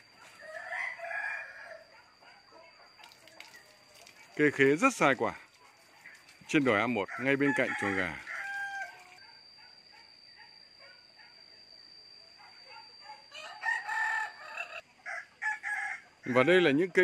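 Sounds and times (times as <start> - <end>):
rooster crowing: 0.1 - 2.3, 7.0 - 9.4, 13.0 - 17.0.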